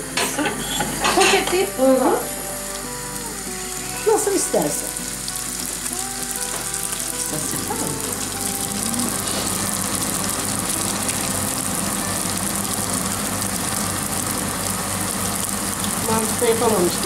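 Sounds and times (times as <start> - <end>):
deep-frying oil sizzling: 0.0 - 17.0.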